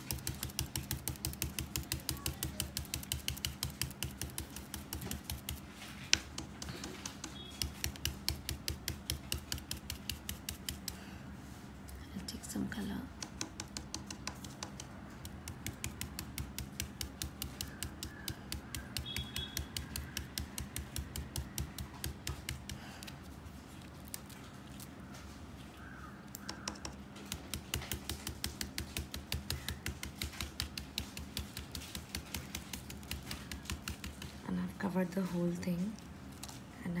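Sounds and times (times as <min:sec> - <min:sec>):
stencil brush tapping: 0:00.0 - 0:11.1, 0:12.9 - 0:24.8, 0:26.3 - 0:36.6.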